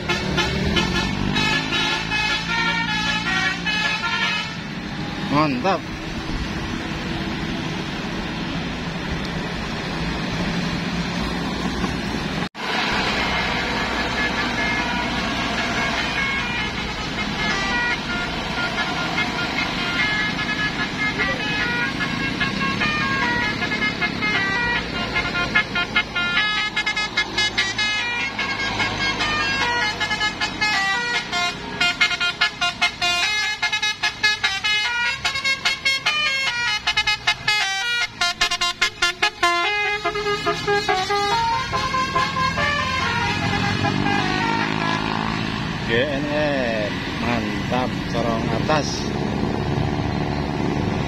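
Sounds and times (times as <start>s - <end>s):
bus horn playing melody: 0.0s - 4.8s, 12.8s - 45.6s
passing road traffic: 0.0s - 51.0s.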